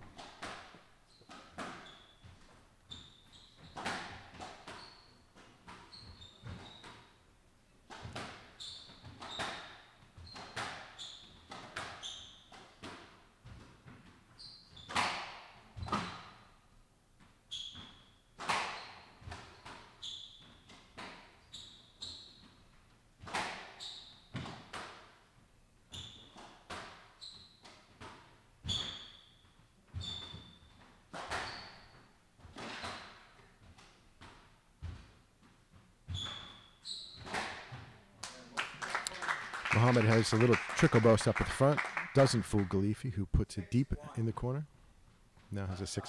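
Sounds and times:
shoes squeaking on wooden floor: 0.0 - 7.2, 7.9 - 15.2, 15.8 - 16.6, 17.4 - 24.7, 25.9 - 38.0.

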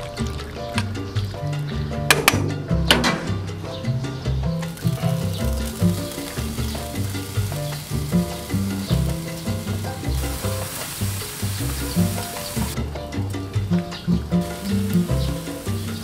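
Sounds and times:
background music with bass line: 0.0 - 16.0
meat sizzling on a grill: 4.7 - 12.8, 14.4 - 16.0.

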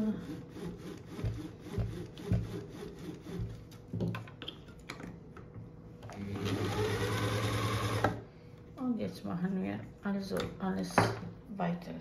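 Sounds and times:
electric motor humming: 6.1 - 8.2.

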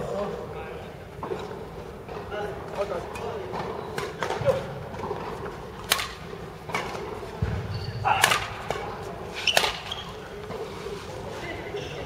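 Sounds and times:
rackets hitting shuttlecock: 3.2 - 10.6.

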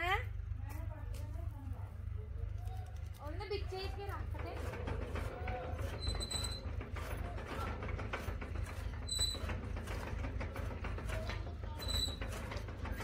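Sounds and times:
chaff cutter creaking and knocking: 2.4 - 13.0
high squeak: 5.9 - 6.7.

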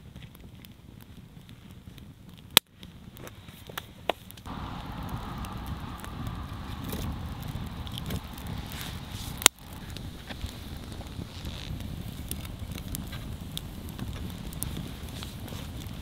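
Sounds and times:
campfire crackling and popping: 0.0 - 16.0
low rushing noise: 4.4 - 13.3.

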